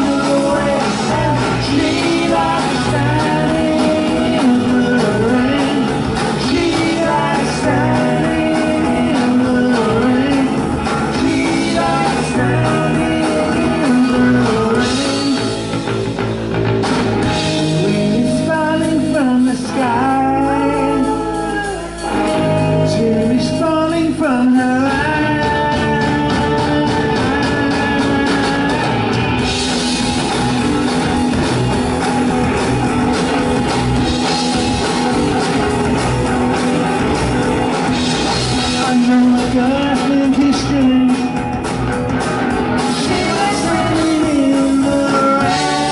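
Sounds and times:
man singing lead vocal: 0:00.0 - 0:15.8, 0:17.5 - 0:29.5, 0:38.1 - 0:41.6, 0:42.7 - 0:45.9
bass guitar: 0:00.0 - 0:45.9
drum kit: 0:00.0 - 0:45.9
electric guitar: 0:00.0 - 0:45.9.

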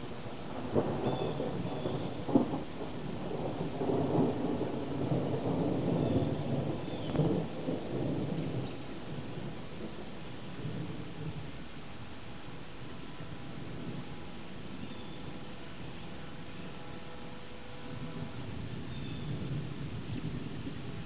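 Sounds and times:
thunder rumbling: 0:00.0 - 0:11.6, 0:17.9 - 0:21.0
steady hiss: 0:00.0 - 0:21.0
thunder crack: 0:00.6 - 0:09.5.

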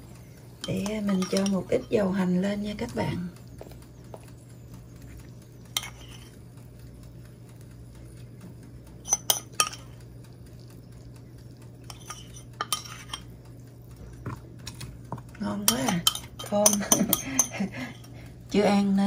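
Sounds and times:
low hum: 0:00.0 - 0:19.0
metal spoon clinking on dishes: 0:00.6 - 0:02.1, 0:05.7 - 0:06.3, 0:09.0 - 0:10.0, 0:11.9 - 0:13.3, 0:14.2 - 0:18.1.

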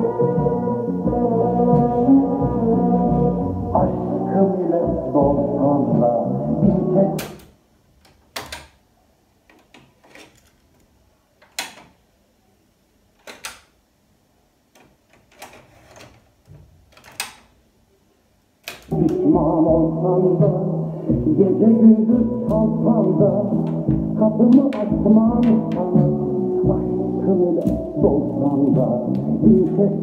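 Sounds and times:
music from boombox speakers: 0:00.0 - 0:07.2, 0:18.9 - 0:30.0.

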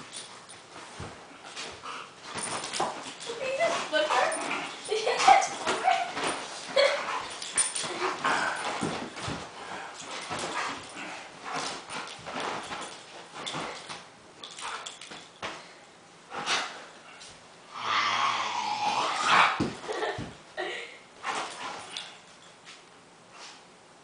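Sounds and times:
bedding scuffling and rustling: 0:00.0 - 0:17.5, 0:19.3 - 0:20.6, 0:21.2 - 0:23.6
dog vocal sounds: 0:03.1 - 0:08.8.

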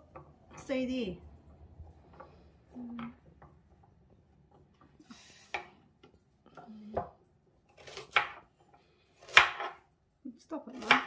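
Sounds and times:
knife chopping on plastic board: 0:07.8 - 0:08.5, 0:09.2 - 0:09.8, 0:10.7 - 0:11.0.

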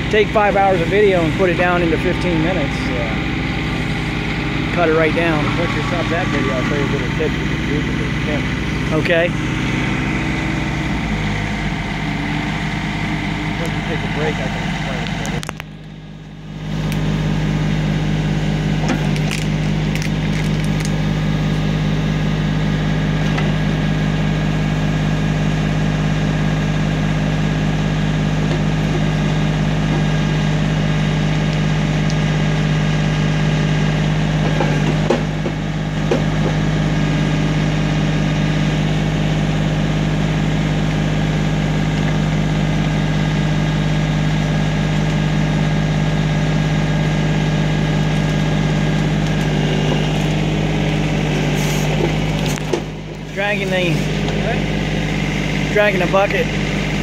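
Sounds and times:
diesel tractor engine running: 0:00.0 - 0:57.0.

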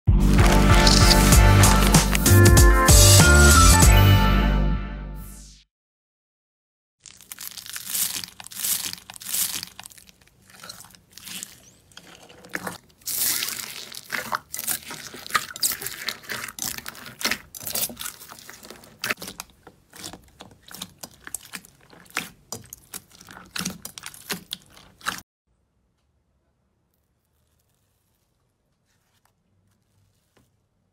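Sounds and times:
foam beads crunching: 0:00.2 - 0:02.5, 0:07.0 - 0:25.2.

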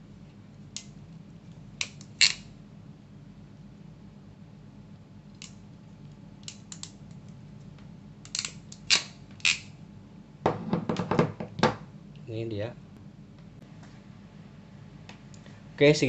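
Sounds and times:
crimping pliers clicking: 0:06.4 - 0:07.2, 0:08.2 - 0:09.6
metal tool knocking on table: 0:10.4 - 0:11.8.

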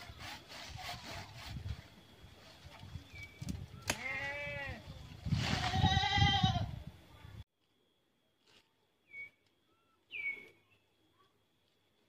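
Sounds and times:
bird chirps: 0:09.0 - 0:11.3.

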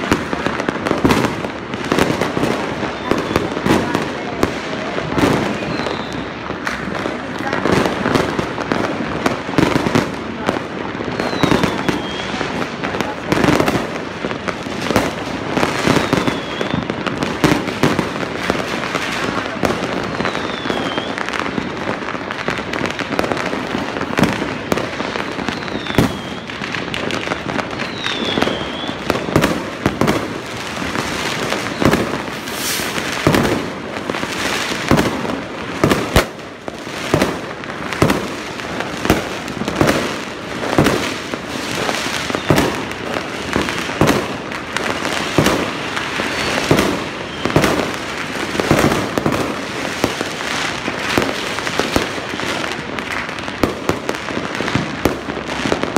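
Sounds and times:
fireworks bangs: 0:00.0 - 0:55.9
fireworks crackling and popping: 0:00.0 - 0:55.9
falling whistles: 0:20.2 - 0:21.2, 0:27.8 - 0:29.0.

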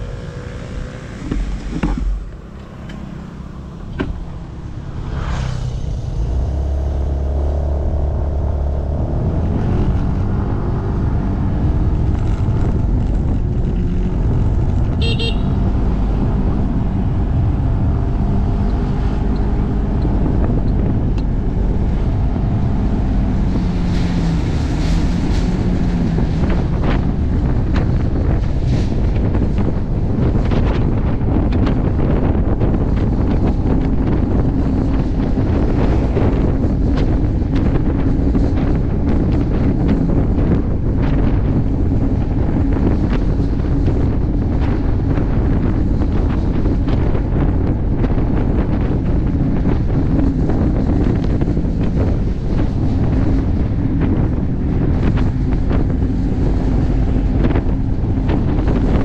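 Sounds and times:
motorcycle engine running: 0:00.0 - 0:04.9, 0:11.6 - 0:22.1
wind on microphone: 0:00.0 - 0:59.0
short horn beep: 0:15.0 - 0:15.5.

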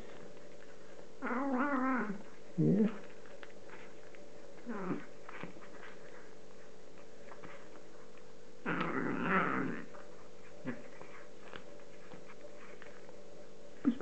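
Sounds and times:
cat growling and mewing: 0:01.2 - 0:03.0, 0:04.6 - 0:05.1, 0:08.6 - 0:10.0.

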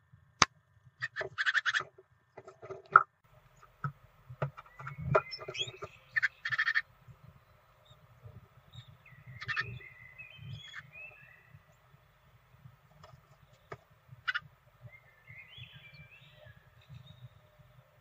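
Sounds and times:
scratching and tapping in nest box: 0:01.1 - 0:06.3, 0:12.8 - 0:14.4
soft high bird chirps: 0:04.6 - 0:12.6, 0:13.3 - 0:17.8.

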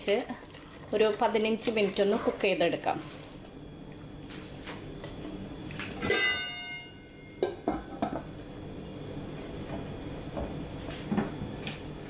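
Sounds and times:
metal lid clanging on pan: 0:06.0 - 0:06.5.

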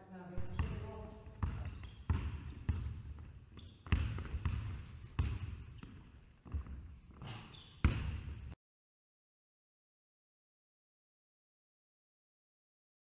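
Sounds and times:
sneaker squeaks: 0:00.4 - 0:08.5
basketball bouncing on wood floor: 0:00.4 - 0:08.6.

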